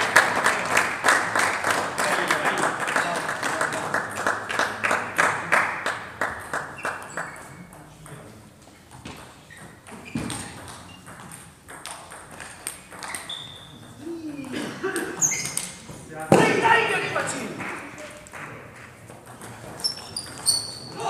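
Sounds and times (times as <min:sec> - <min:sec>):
applause: 0:00.0 - 0:07.5, 0:17.4 - 0:18.6
table tennis balls clicking: 0:06.4 - 0:16.4, 0:18.0 - 0:20.9
shoe squeaks: 0:06.8 - 0:07.7, 0:09.4 - 0:11.3, 0:12.9 - 0:14.0, 0:15.2 - 0:15.9, 0:19.6 - 0:21.0.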